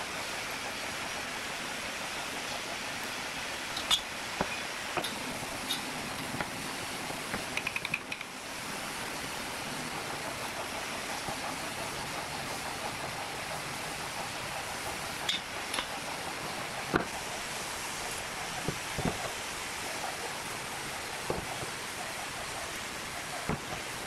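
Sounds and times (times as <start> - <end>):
steady background hiss: 0.0 - 24.0
hand tools tapping on wooden bench: 7.3 - 8.3.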